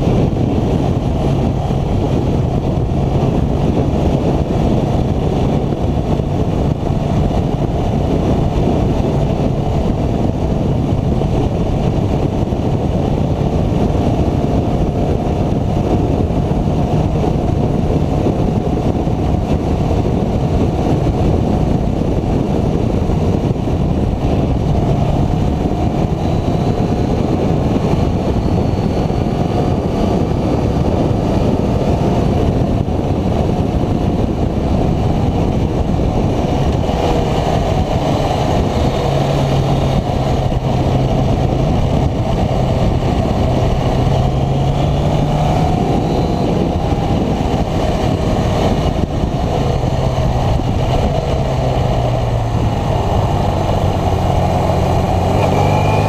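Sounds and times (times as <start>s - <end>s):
motorcycle engine running: 0.0s - 56.0s
wind rumble on microphone: 0.0s - 56.0s.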